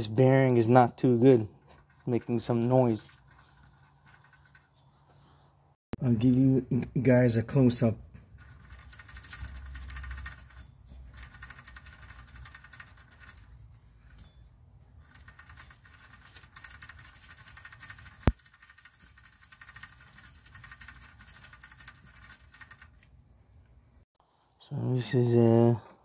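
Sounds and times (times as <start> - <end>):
wheel bearing scratchy ticking: 1.4 - 5.0, 8.2 - 23.1.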